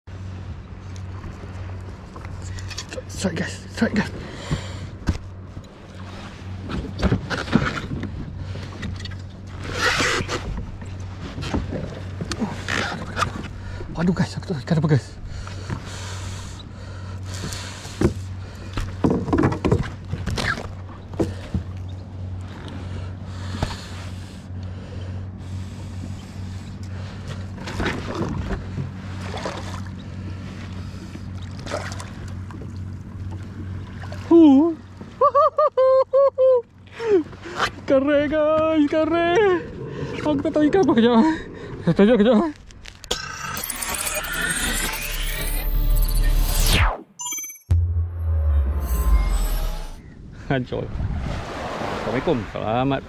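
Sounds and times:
knocks and scraping on kayak: 17.9s - 21.7s
water splashing around kayak: 25.4s - 35.2s, 51.2s - 53.0s
low hum: 38.9s - 51.6s
short rush of noise: 47.7s - 50.1s.

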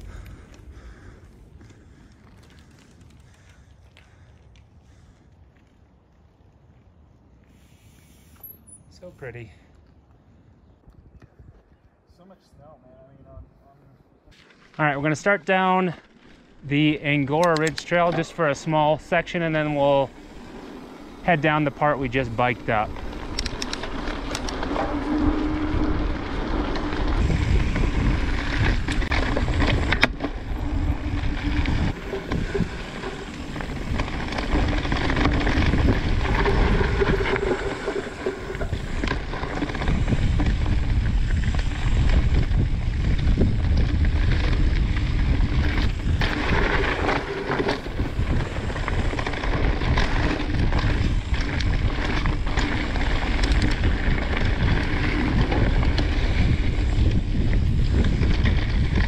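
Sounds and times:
bike tyres rumbling on dirt: 0.0s - 8.4s, 14.3s - 59.0s
wind buffeting microphone: 9.9s - 13.8s, 17.6s - 59.0s
bike knocking and rattling over bumps: 14.4s - 59.0s.

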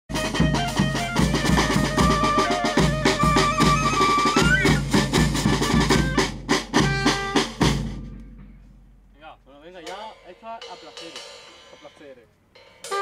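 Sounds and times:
wind band playing upbeat tune: 0.1s - 8.2s, 12.8s - 13.0s
bass drum and snare: 0.1s - 11.2s.

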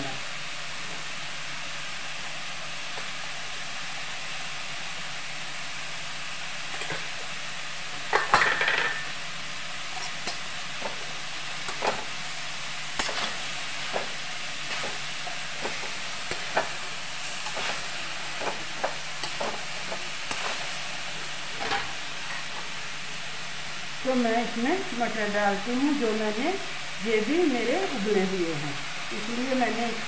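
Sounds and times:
hiss of frying: 0.0s - 30.0s
pan clatter: 8.1s - 9.1s, 21.5s - 22.5s
metal spoon scraping a pan: 13.0s - 20.8s, 21.5s - 22.6s.

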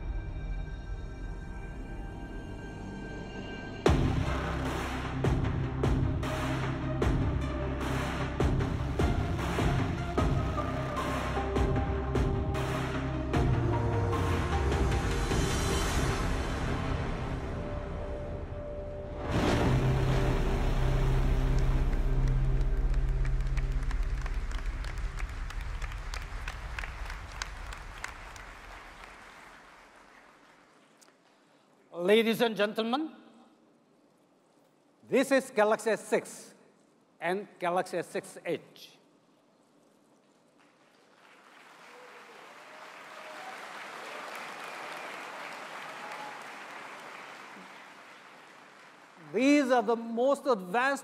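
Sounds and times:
low bass music: 1.7s - 26.1s
large audience applauding: 20.5s - 31.5s, 40.5s - 49.6s.

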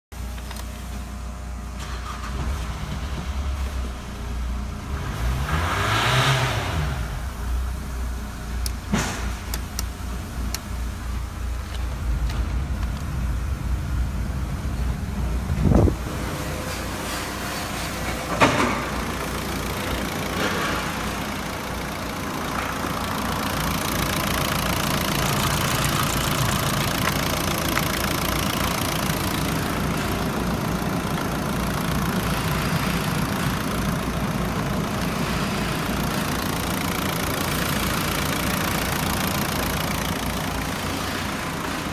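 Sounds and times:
diesel engine idling: 6.7s - 41.9s.

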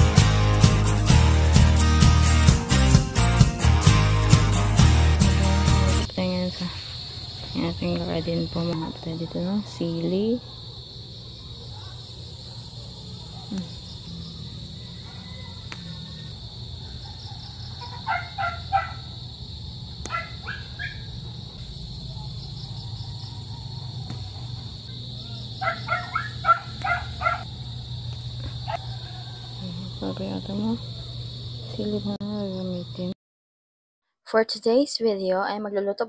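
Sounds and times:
crickets chirring: 4.5s - 33.2s
dog barking: 14.9s - 16.3s, 17.0s - 19.2s, 20.1s - 21.4s, 25.6s - 27.5s, 28.6s - 29.4s.

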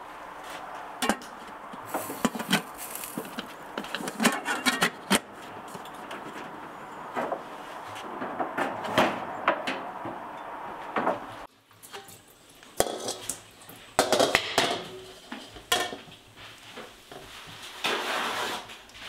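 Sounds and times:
cookware and utensils clattering: 1.0s - 7.1s, 11.8s - 16.2s.

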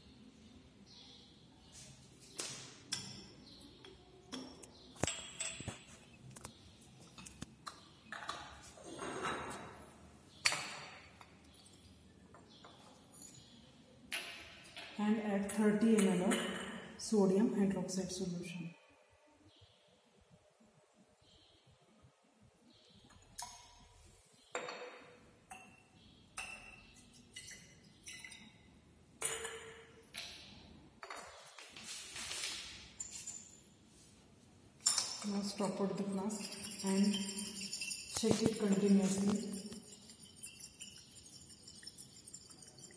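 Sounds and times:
glassware clicks and knocks: 2.9s - 6.5s, 7.1s - 9.8s, 10.4s - 11.6s, 14.1s - 15.0s, 15.9s - 16.9s, 24.5s - 31.5s, 34.8s - 42.9s
ringing glass clink: 34.9s - 42.9s.

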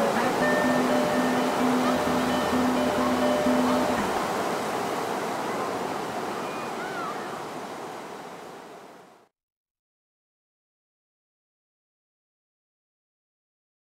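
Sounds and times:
surf washing onto beach: 0.0s - 9.3s.

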